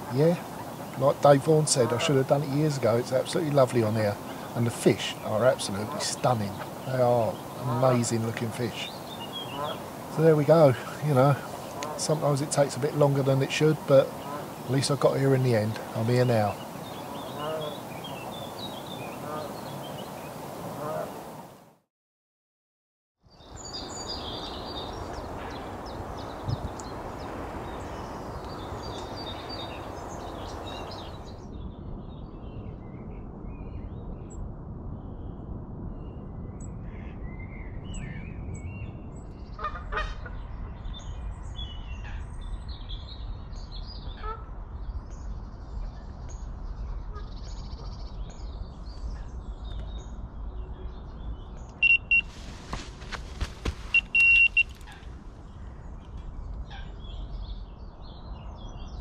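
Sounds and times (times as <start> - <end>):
background hiss: 0.0 - 21.4, 51.6 - 55.5
birds calling and chirping: 0.0 - 21.4, 23.4 - 32.7, 36.6 - 59.0
electronic bite alarm beeping: 51.8 - 52.3, 53.9 - 54.8.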